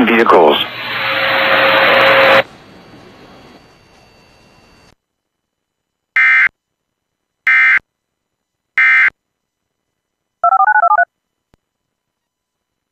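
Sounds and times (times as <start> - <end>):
digital data screech: 0.0 - 2.5
touch-tone beeps: 10.4 - 11.1.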